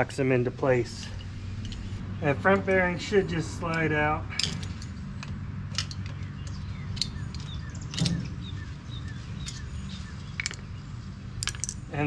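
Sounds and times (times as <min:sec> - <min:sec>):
metallic clicks and clinks: 0:03.7 - 0:08.4, 0:10.4 - 0:10.7, 0:11.4 - 0:11.9
bird chirping: 0:05.9 - 0:11.4.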